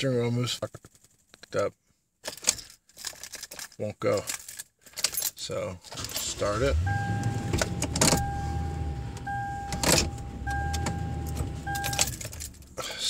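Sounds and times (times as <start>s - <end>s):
car warning chime: 6.2s - 12.3s
low engine hum: 6.3s - 12.8s.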